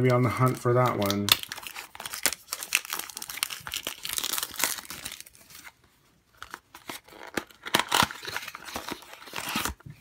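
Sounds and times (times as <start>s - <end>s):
plastic bag crinkling: 0.3s - 5.6s.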